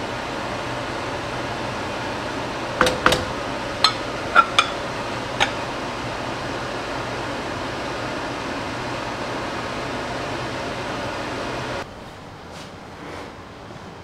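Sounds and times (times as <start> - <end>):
bowl and spatula clinking on wok: 3.8 - 4.8.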